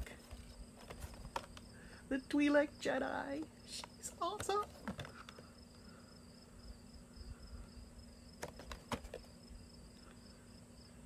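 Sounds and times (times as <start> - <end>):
cardboard box clicks: 8.4 - 9.3.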